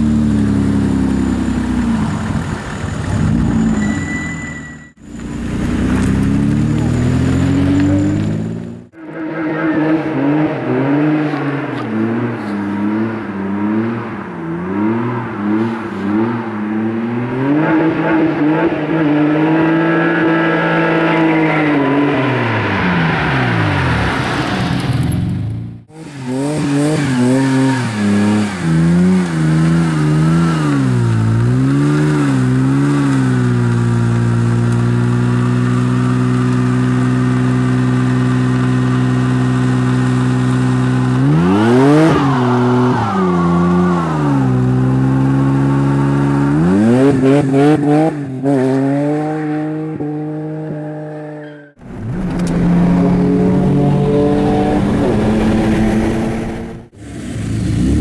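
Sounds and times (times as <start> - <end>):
car engine revving: 5.0 - 58.0.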